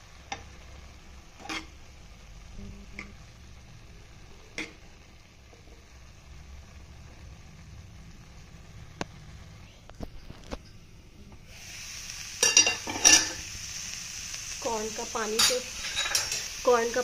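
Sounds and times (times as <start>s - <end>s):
frying sizzle: 0.0s - 17.0s.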